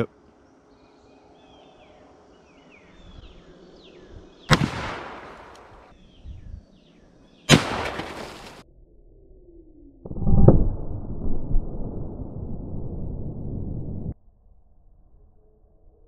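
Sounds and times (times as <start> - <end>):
birds chirping: 0.0 - 8.6
revolver shots with echo: 4.5 - 5.7.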